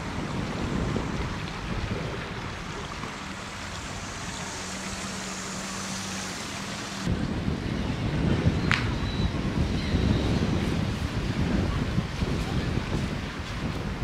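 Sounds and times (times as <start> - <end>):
wind: 0.0 - 14.0
wind buffeting microphone: 0.0 - 14.0.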